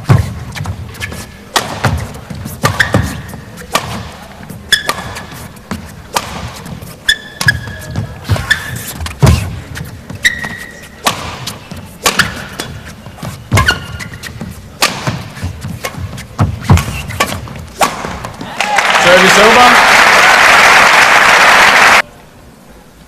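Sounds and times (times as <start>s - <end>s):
footwork thuds on court: 0.0s - 18.5s
shoes squeaking on court floor: 0.0s - 18.5s
rackets hitting shuttlecock: 0.1s - 18.5s.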